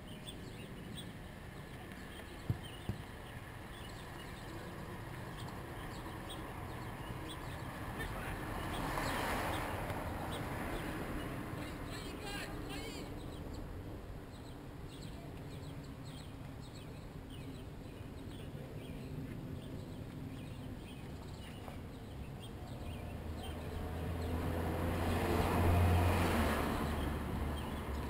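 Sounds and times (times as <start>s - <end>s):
small birds chirping: 0.0s - 28.0s
car driving past: 5.8s - 11.6s, 22.8s - 28.0s.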